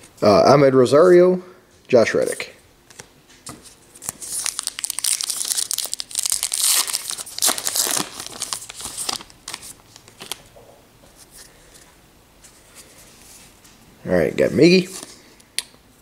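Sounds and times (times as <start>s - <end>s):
wrapper crinkling and tearing: 4.0s - 10.5s.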